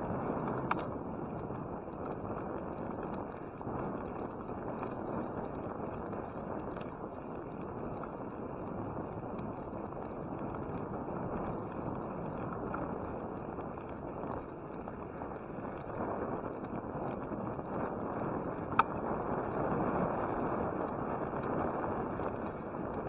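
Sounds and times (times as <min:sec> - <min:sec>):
bicycle tyres rolling on pavement: 0:00.0 - 0:23.0
faint ticks and crackles: 0:00.0 - 0:23.0
wind on microphone: 0:00.0 - 0:23.0.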